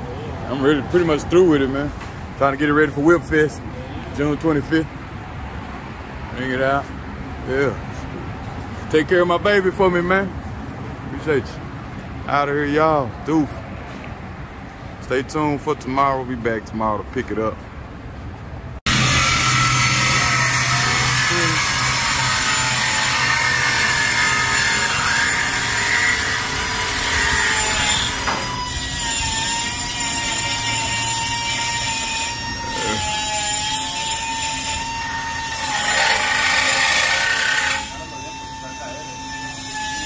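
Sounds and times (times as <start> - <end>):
power saw cutting metal pipe: 18.9 - 40.0.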